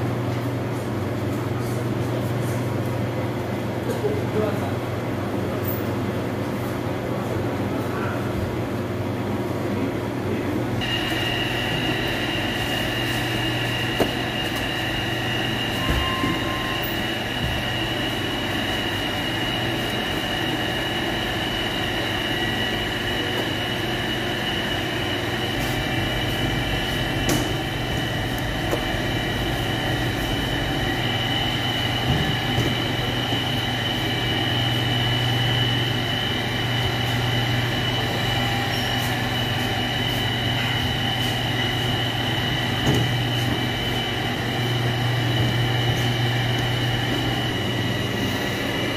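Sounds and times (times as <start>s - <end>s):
machinery low hum: 0.0s - 48.9s
high steady whine: 10.8s - 48.9s.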